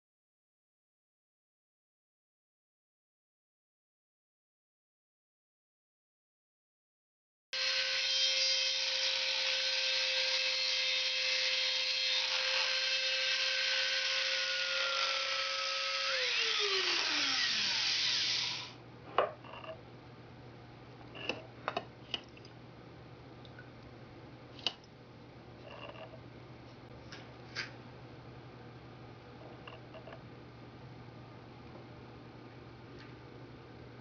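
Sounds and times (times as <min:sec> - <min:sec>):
rotary tool grinding glass: 0:25.6 - 0:26.2.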